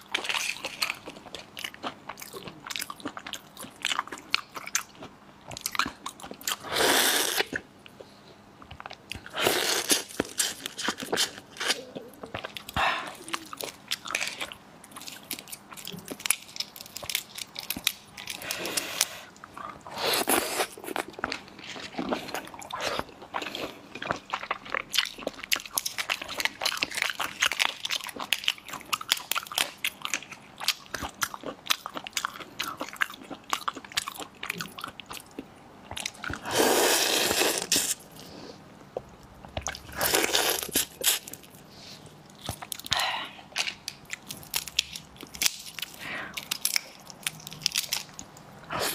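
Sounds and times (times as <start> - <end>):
chewing: 7.3 - 36.5
prawn shells cracking: 43.6 - 48.3.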